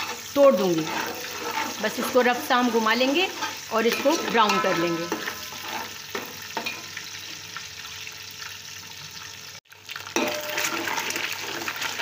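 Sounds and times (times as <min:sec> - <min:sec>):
metal ladle stirring: 0:00.0 - 0:06.9, 0:10.1 - 0:12.0
eggs sizzling in hot oil: 0:00.0 - 0:12.0.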